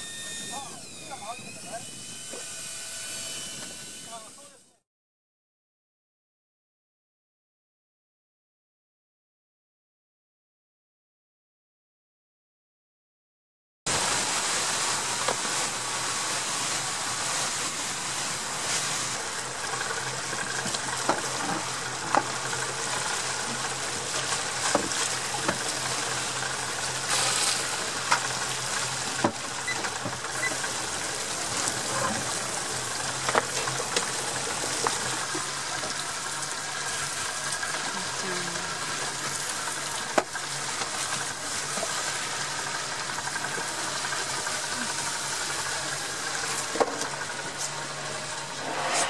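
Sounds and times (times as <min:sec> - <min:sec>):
water rushing along boat hull: 0:00.0 - 0:04.6, 0:13.9 - 0:48.6
low engine hum: 0:13.9 - 0:49.0.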